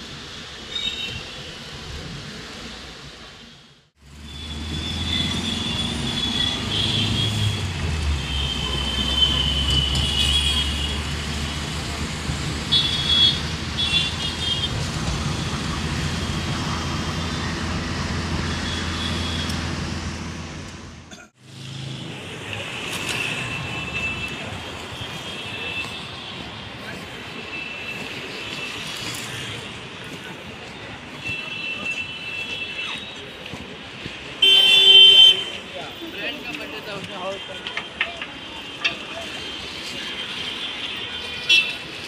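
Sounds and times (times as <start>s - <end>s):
vehicle rumble: 3.9s - 25.1s.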